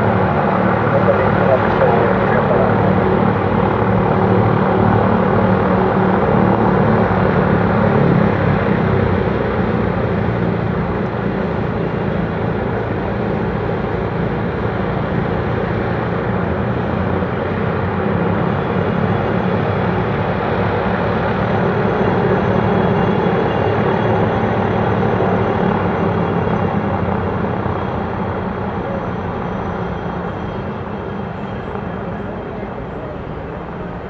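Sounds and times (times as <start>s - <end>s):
propeller engines droning: 0.0s - 34.0s.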